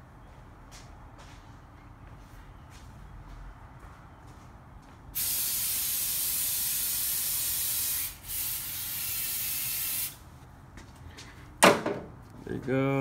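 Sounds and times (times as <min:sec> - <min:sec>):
aerosol can spraying: 0:05.2 - 0:10.2.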